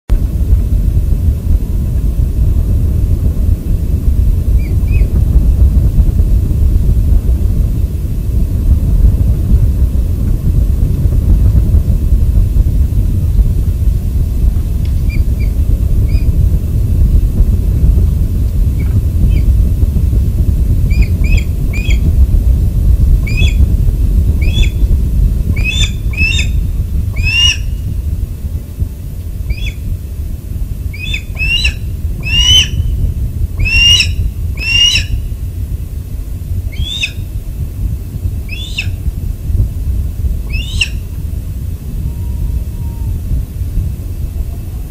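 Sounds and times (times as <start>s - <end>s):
steady low rumble: 0.0s - 44.9s
osprey piping calls: 20.9s - 22.0s, 23.3s - 23.6s, 24.4s - 24.8s, 25.6s - 26.6s, 27.2s - 27.8s, 29.5s - 29.8s, 30.9s - 32.9s, 33.6s - 35.2s, 36.7s - 37.3s, 38.5s - 39.0s, 40.5s - 41.0s.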